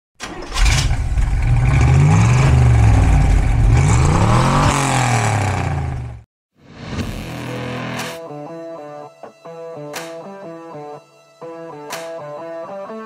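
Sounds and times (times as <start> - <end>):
car engine revving: 0.3 - 6.2.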